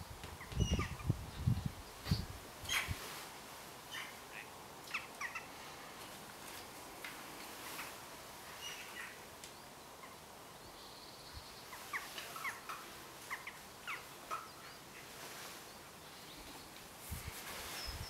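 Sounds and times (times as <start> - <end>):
faint outdoor hiss: 0.0 - 18.0
birds chirping: 0.4 - 3.0, 3.9 - 6.6, 7.7 - 16.9.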